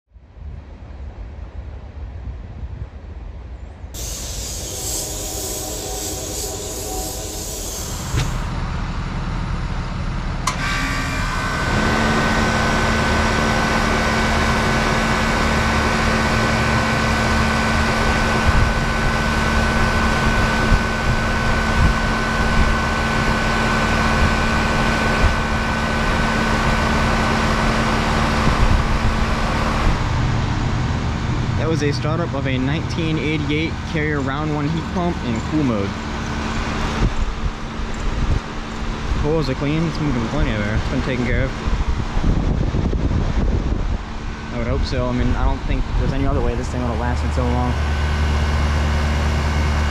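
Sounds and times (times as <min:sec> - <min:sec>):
condenser fan rushing: 0:04.0 - 0:49.9
heat pump compressor hum: 0:04.0 - 0:49.9
heat pump click: 0:10.4 - 0:11.0.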